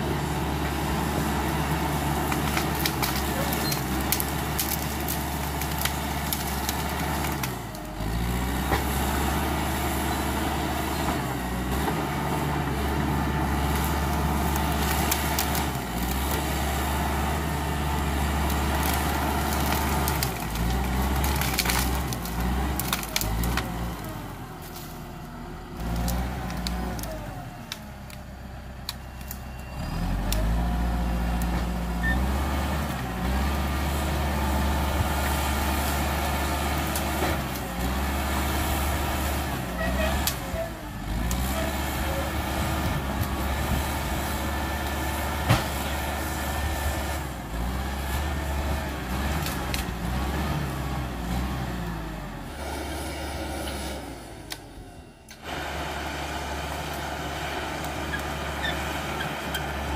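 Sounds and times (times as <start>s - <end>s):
bulldozer diesel engine under load: 0.0s - 59.9s
branches cracking and snapping: 1.4s - 9.9s, 11.7s - 28.2s, 28.8s - 40.4s, 41.0s - 51.5s.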